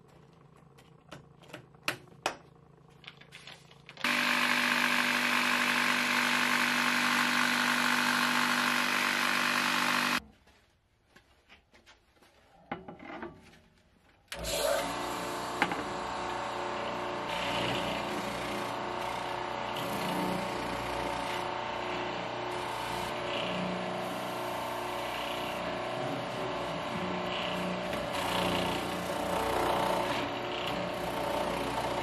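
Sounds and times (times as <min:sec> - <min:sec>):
spindle sander running: 0:04.0 - 0:10.2, 0:14.4 - 0:32.0.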